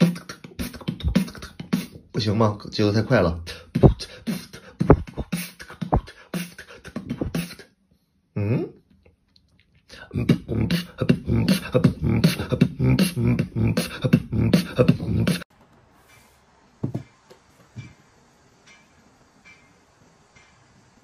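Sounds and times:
person beatboxing: 0.0 - 2.4, 3.2 - 7.7, 9.9 - 15.5.

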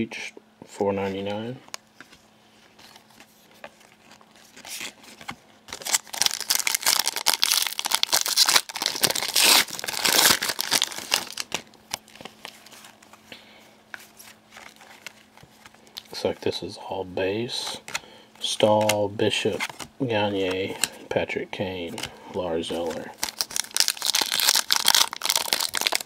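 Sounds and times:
wrapper tearing and crinkling: 3.9 - 13.0, 22.7 - 26.0.

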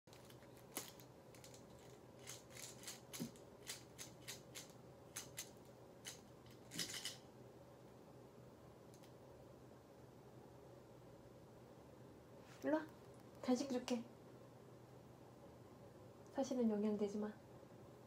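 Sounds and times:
medicine package clicks and crinkles: 0.1 - 7.2.

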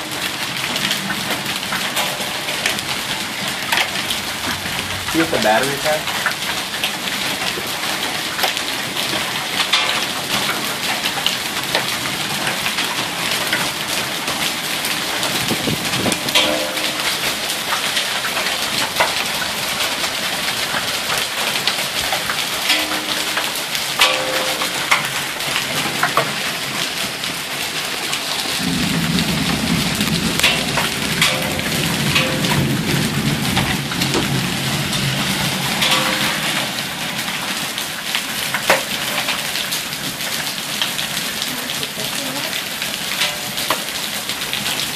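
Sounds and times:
hailstones ticking on concrete: 0.0 - 44.9
heavy rain on pavement: 0.0 - 44.9
thunder rumbling: 0.7 - 7.6, 13.0 - 26.8, 28.1 - 38.5.

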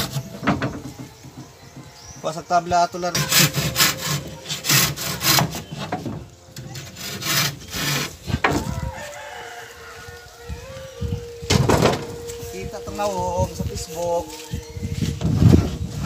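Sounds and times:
hand saw cutting wood: 2.9 - 8.6
rooster crowing: 8.5 - 14.7.

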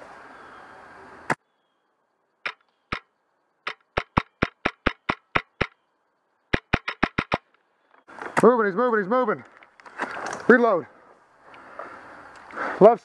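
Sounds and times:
sharp click: 2.4 - 3.1, 3.7 - 5.8, 6.5 - 7.6
airsoft rifle shots: 3.7 - 5.8, 6.5 - 7.5.

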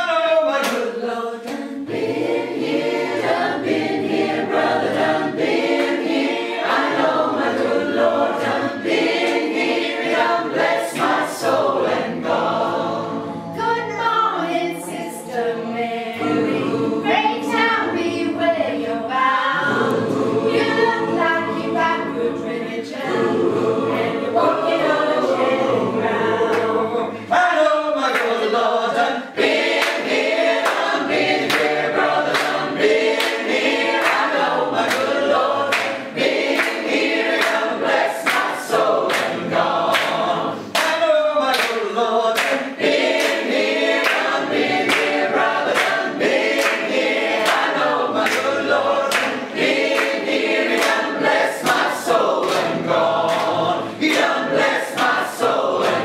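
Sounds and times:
choir singing a cappella: 0.0 - 56.0
sharp handclaps: 0.6 - 1.8, 28.1 - 28.4, 29.7 - 56.0.

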